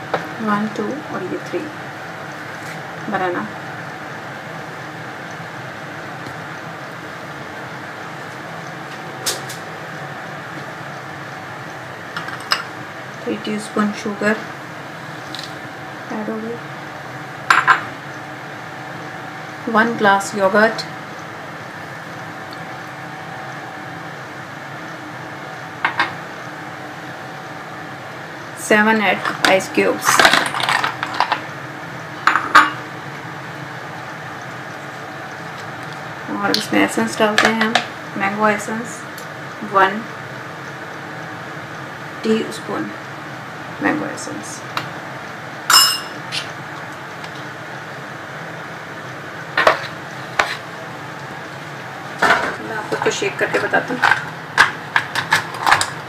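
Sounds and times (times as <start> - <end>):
steady background hum: 0.0 - 56.0
glass clinking against jar: 45.7 - 46.2.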